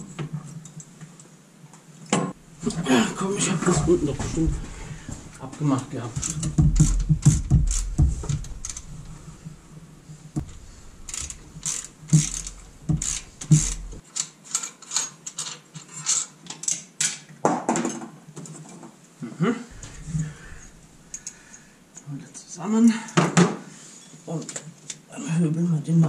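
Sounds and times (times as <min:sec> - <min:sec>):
handling bumps: 0:02.3 - 0:14.0, 0:19.7 - 0:21.4.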